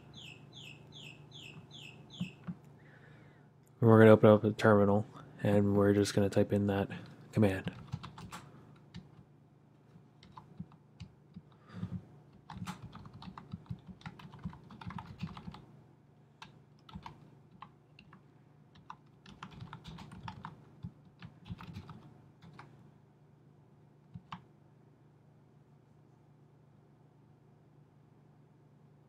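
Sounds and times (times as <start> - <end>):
computer keyboard typing: 7.6 - 9.2, 10.2 - 15.6, 16.4 - 22.7.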